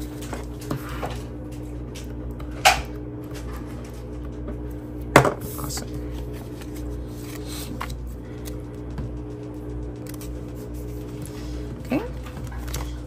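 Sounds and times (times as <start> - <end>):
steady low hum: 0.0 - 13.0
paper shuffling: 5.4 - 13.0
paper rustling: 5.6 - 8.6, 10.0 - 13.0.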